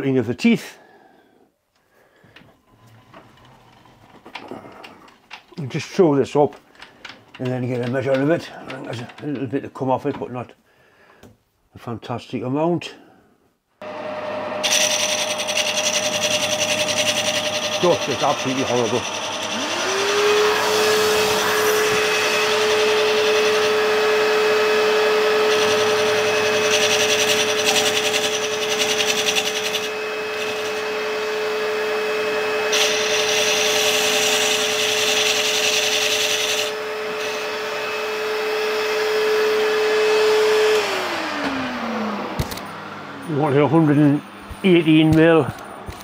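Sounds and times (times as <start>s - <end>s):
lathe tool rasping: 6.8s - 9.2s, 13.8s - 42.2s
lathe motor hum: 13.8s - 44.9s.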